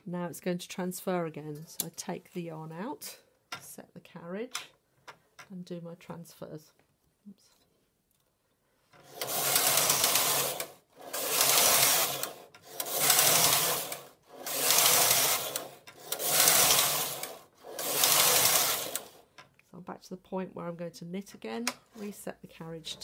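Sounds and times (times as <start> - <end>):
knitting machine carriage sliding: 8.9 - 19.3.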